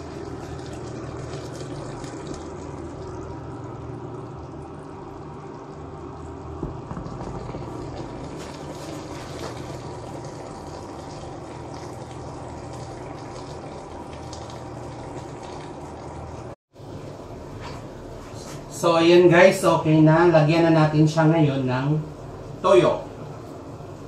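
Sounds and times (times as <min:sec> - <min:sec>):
chicken simmering in pot: 0:00.0 - 0:17.6
low even hum: 0:00.0 - 0:24.0.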